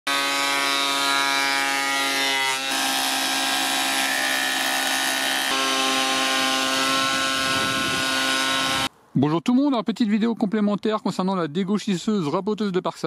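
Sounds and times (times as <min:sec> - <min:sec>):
cutter block rushing: 0:00.1 - 0:08.9
planer motor whine: 0:04.6 - 0:08.9.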